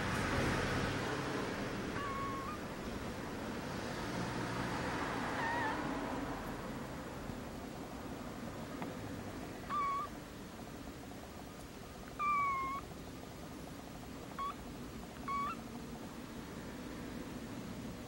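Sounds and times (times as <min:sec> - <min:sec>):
kitten mewing: 0:01.8 - 0:02.7, 0:05.3 - 0:05.9, 0:09.6 - 0:10.1, 0:12.1 - 0:12.9, 0:14.3 - 0:14.6, 0:15.2 - 0:15.7.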